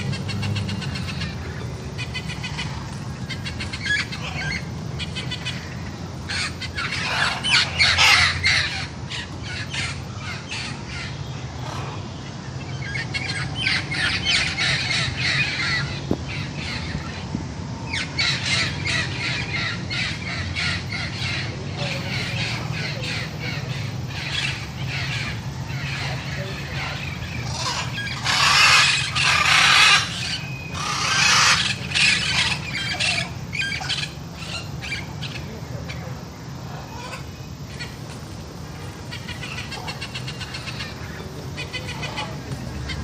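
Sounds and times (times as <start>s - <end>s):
macaw squawking: 0.0s - 12.0s, 17.9s - 36.0s, 39.0s - 43.0s
steady low hum: 0.0s - 43.0s.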